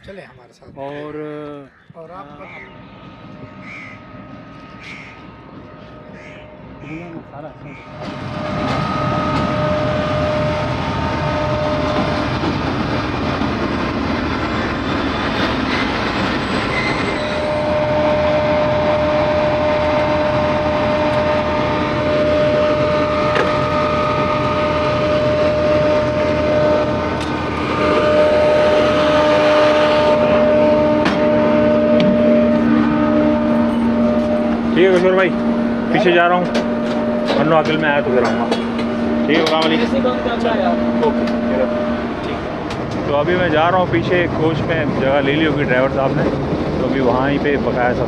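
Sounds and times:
diesel locomotive engine rumble: 0:00.0 - 0:48.0.

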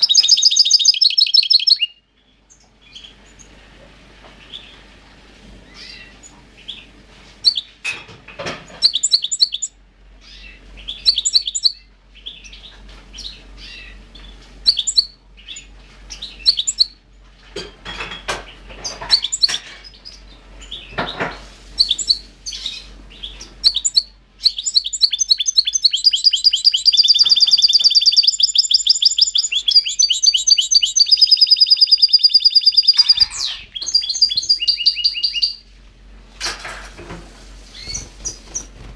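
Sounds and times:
goldfinch chirping and singing: 0:00.0 - 0:01.9, 0:08.8 - 0:17.0, 0:21.8 - 0:35.6.

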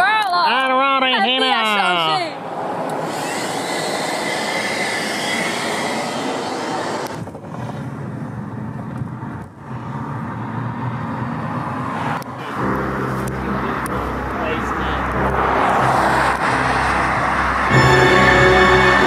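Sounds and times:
vehicle driving on road: 0:00.5 - 0:19.0
vacuum cleaner whine: 0:03.0 - 0:07.2.

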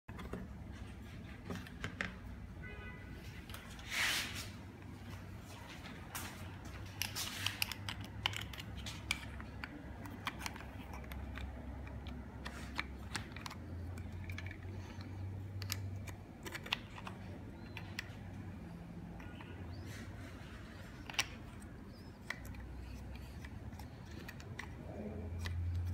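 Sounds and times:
plastic clicks and scrapes: 0:06.7 - 0:25.9.

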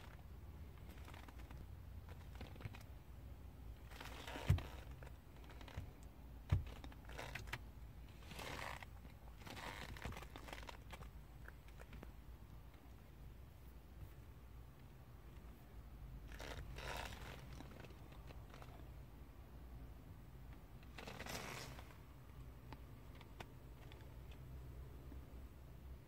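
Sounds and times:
faint rustling and handling: 0:00.0 - 0:03.1, 0:03.7 - 0:19.0, 0:20.5 - 0:24.5
low steady rumble: 0:00.0 - 0:26.0
dull thumps: 0:04.0 - 0:07.4.

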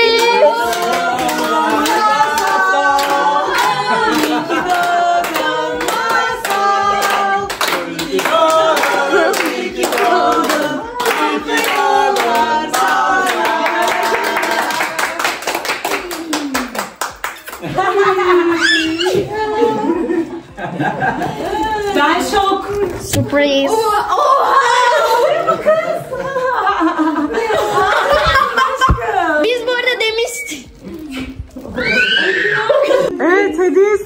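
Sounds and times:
group singing: 0:00.0 - 0:15.8
rhythmic hand clapping: 0:00.0 - 0:18.0.

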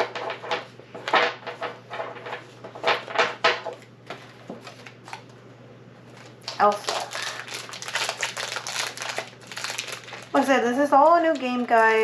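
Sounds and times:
cards rustling: 0:04.2 - 0:05.3, 0:06.1 - 0:12.0
foil wrapper crinkling: 0:06.1 - 0:12.0.

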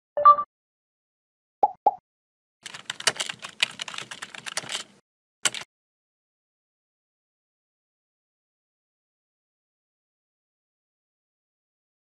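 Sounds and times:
keyboard key clicks: 0:02.7 - 0:05.7.

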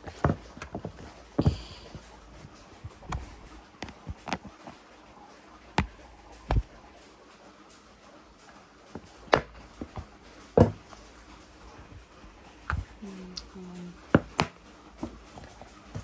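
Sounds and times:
objects knocking on table: 0:10.6 - 0:10.8.

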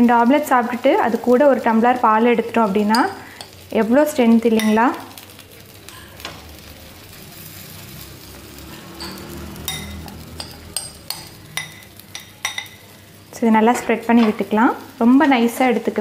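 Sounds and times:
faint batter sizzle: 0:00.0 - 0:16.0
metal spoon clinking glass bowl: 0:02.9 - 0:03.6, 0:04.6 - 0:04.9, 0:09.0 - 0:12.9.

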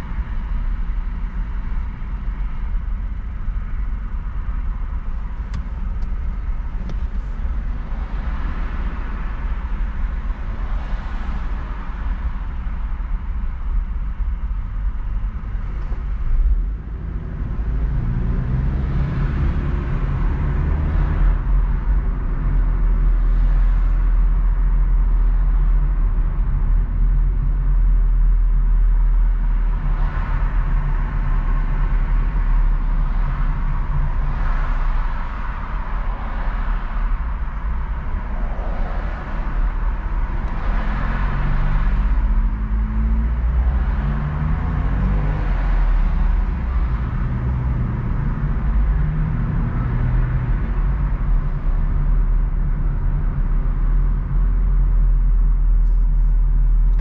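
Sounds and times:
car engine and road rumble: 0:00.0 - 0:57.0
tyre and traffic noise: 0:00.0 - 0:57.0.

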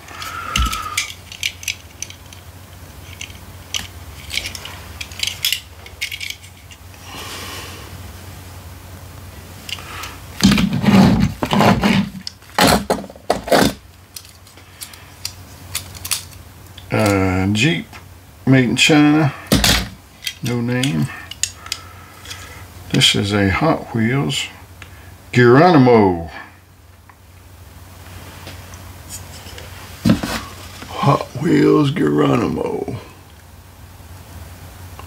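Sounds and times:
metal toy cars clinking: 0:00.0 - 0:06.8, 0:14.1 - 0:16.4.

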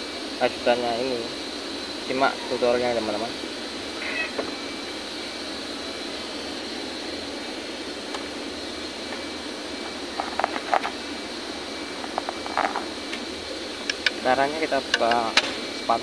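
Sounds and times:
faint high whine: 0:00.0 - 0:16.0
hands tapping machine: 0:14.8 - 0:15.6.

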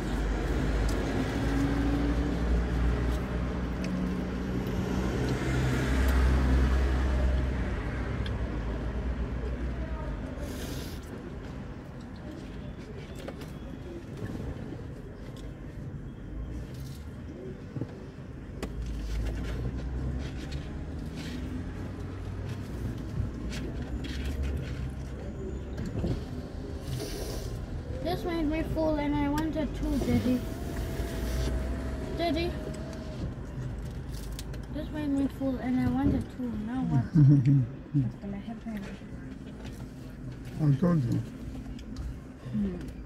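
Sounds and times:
car engine rumble: 0:13.3 - 0:43.0.

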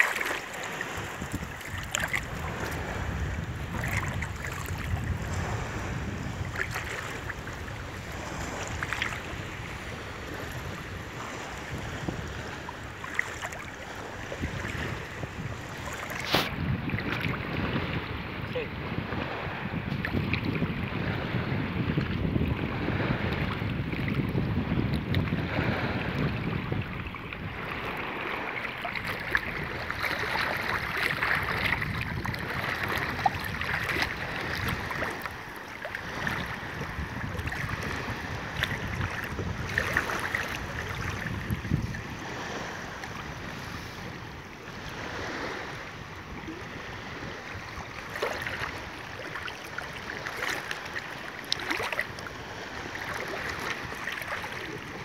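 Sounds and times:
seawater swishing around legs: 0:00.0 - 0:05.1, 0:12.5 - 0:17.4
sharp water splashes: 0:00.0 - 0:05.5, 0:12.8 - 0:17.9, 0:27.8 - 0:41.5, 0:48.0 - 0:54.8
wind buffeting microphone: 0:00.1 - 0:51.0, 0:51.6 - 0:55.0.

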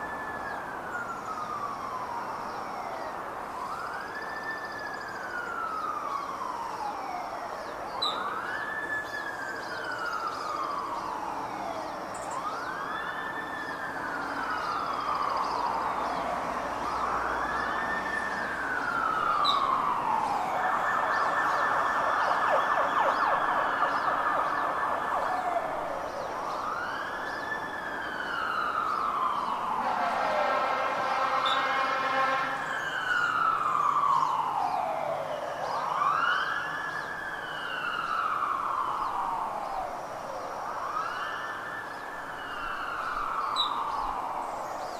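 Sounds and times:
electronic siren wailing: 0:16.8 - 0:27.1.

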